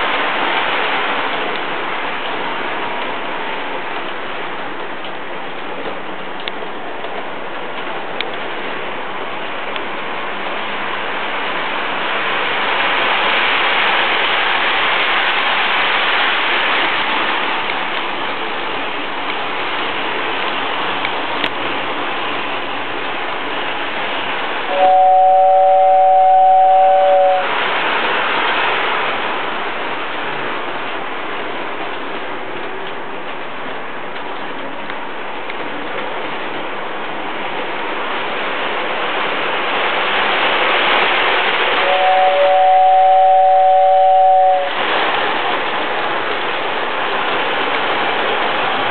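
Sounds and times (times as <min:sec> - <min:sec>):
two-note train whistle: 0:24.7 - 0:27.5, 0:41.8 - 0:44.8.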